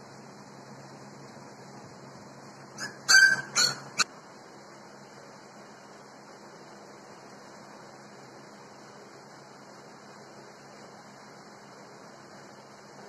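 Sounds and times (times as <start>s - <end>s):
puppy yelping: 2.8s - 4.1s.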